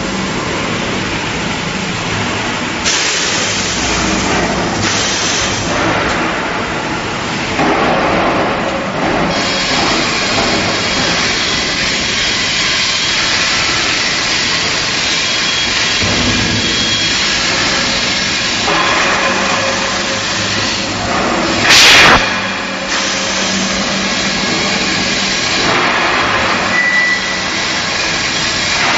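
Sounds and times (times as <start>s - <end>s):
pipe mill machinery: 0.0s - 28.9s
loud hiss: 4.8s - 5.8s, 9.3s - 28.8s.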